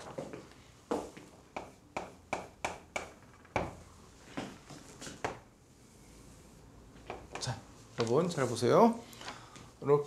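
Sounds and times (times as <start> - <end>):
chalk tapping and scraping on blackboard: 1.0 - 3.1.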